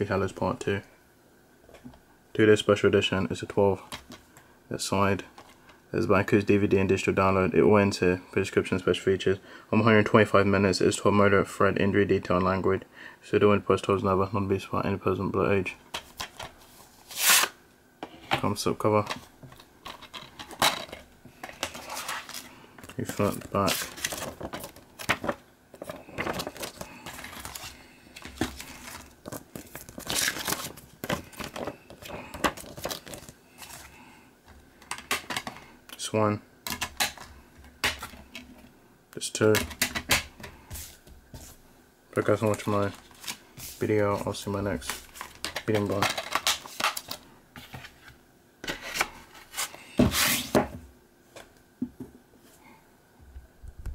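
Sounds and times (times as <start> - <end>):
paper rustling and crinkling: 19.0 - 34.0, 42.4 - 43.9.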